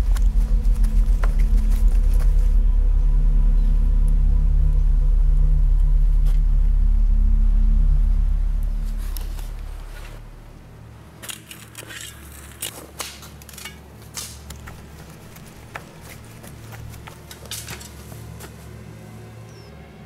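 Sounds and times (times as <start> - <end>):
footsteps snapping twigs: 0.0 - 2.6, 11.2 - 18.7
low steady hum: 0.0 - 20.0.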